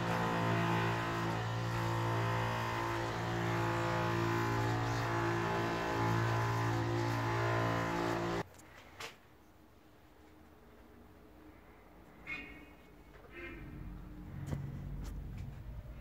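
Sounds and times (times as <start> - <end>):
electric pump humming: 0.0 - 8.4.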